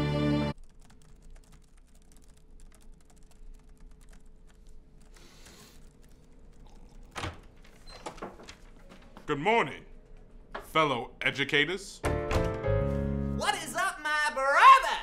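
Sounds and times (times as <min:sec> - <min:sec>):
typing on laptop keyboard: 0:00.6 - 0:07.6.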